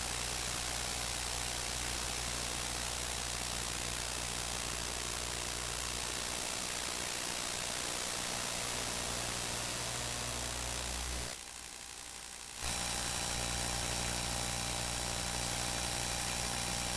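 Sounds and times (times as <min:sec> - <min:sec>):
compressor machinery engine drone: 0:12.6 - 0:16.9.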